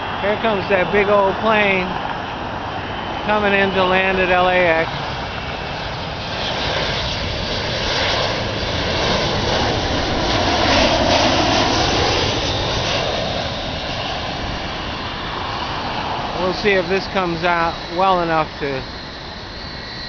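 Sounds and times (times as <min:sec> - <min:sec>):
jet airliner passing close: 0:00.0 - 0:20.0.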